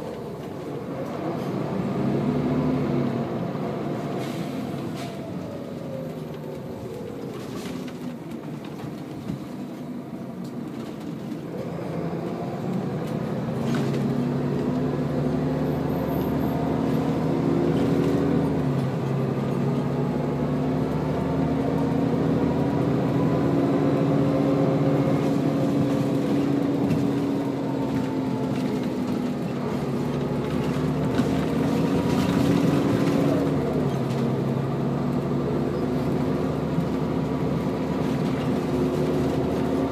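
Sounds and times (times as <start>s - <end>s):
bus diesel engine: 0.0s - 39.9s.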